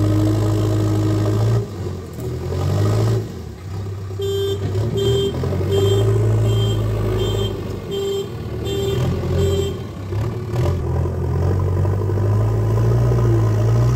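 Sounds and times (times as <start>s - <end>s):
diesel engine running: 0.0s - 13.9s
reversing alarm beeping: 5.0s - 9.8s.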